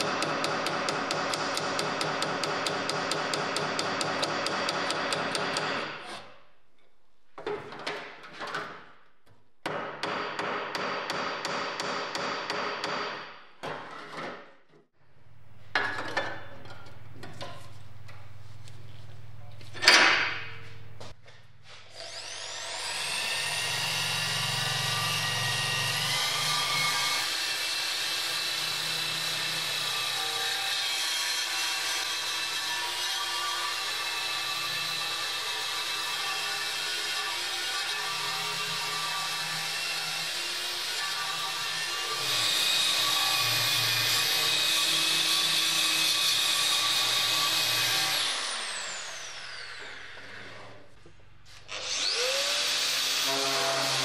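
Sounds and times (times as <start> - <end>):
hammer tapping sheet metal: 0.0 - 5.9
drill with wire-wheel brush whining: 21.9 - 50.8, 51.5 - 54.0.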